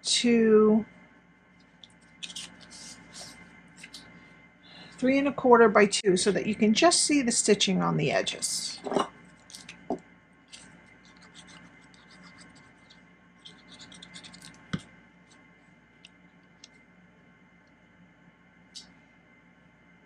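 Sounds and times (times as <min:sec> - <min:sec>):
paper scratching and rustling: 0:02.0 - 0:04.1, 0:10.5 - 0:15.4.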